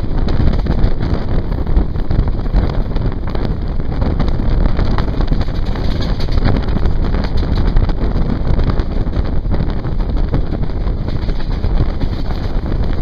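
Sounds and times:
train running noise: 0.0 - 13.0
wind buffeting the microphone: 0.0 - 13.0.

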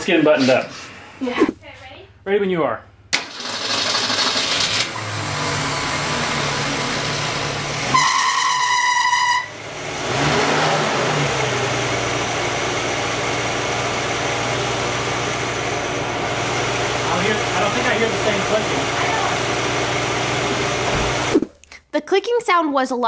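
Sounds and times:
car engine idling: 3.0 - 21.3.

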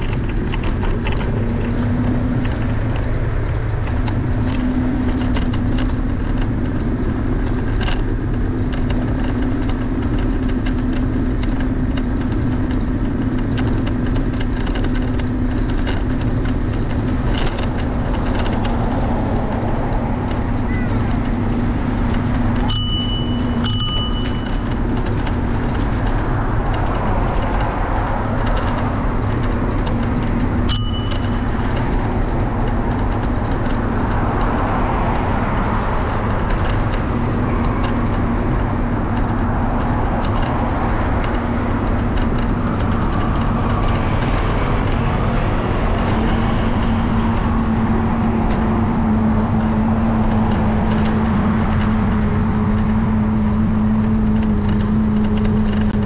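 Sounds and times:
road traffic: 0.0 - 56.0
wind noise: 0.0 - 56.0
bicycle bell ringing: 22.6 - 25.0, 30.6 - 31.9.

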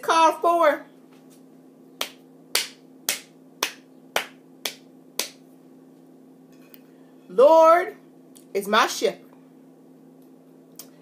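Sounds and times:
person clapping hands: 2.0 - 5.4.

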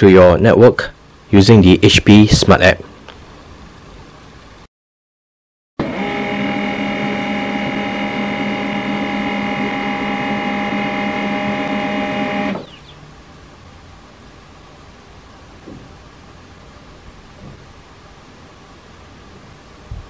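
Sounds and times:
printer motors whirring: 5.8 - 12.7.

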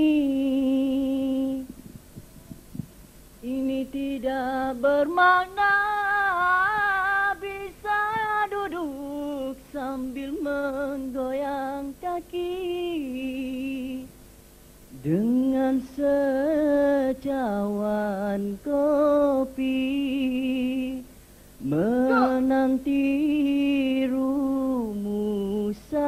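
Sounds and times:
man singing into microphone: 21.6 - 26.0.

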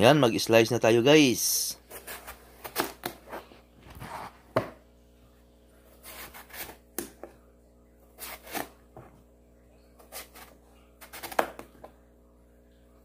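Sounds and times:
knife slicing eggplant: 6.0 - 7.3, 10.0 - 11.7.

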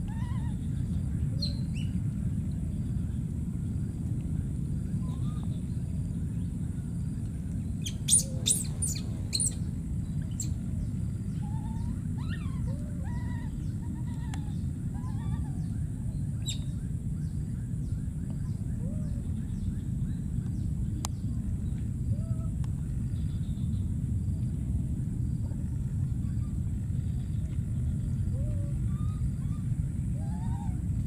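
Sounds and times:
whistled bird calls: 0.0 - 2.0, 5.0 - 5.8, 7.8 - 20.7, 28.0 - 31.0
low steady rumble: 0.0 - 31.0
birds chirping: 4.4 - 21.8.

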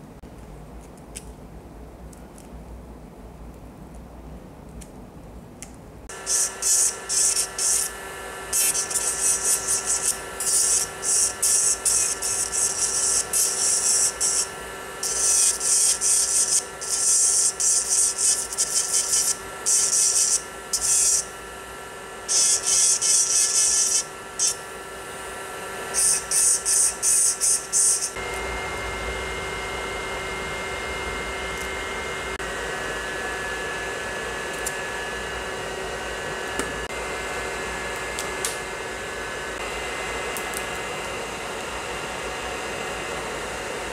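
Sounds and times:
steady whirring hum: 0.0 - 43.9
nail drill grinding: 6.1 - 28.4
nail drill motor whine: 6.1 - 43.9.

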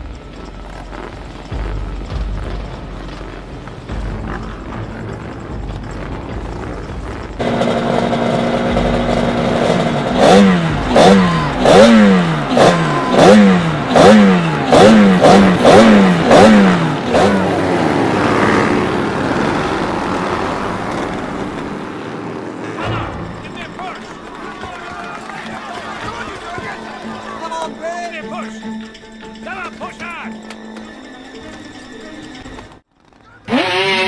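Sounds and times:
two-stroke motorcycle engine revving: 0.9 - 24.4, 33.4 - 34.0.

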